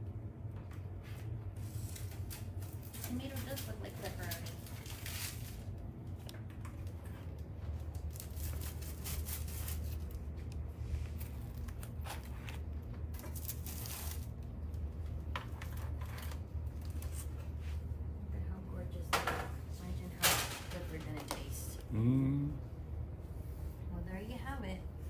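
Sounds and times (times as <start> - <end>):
steady low hum: 0.0 - 25.0
utensil scraping foil trays: 1.6 - 5.7, 8.2 - 10.2, 11.1 - 14.4.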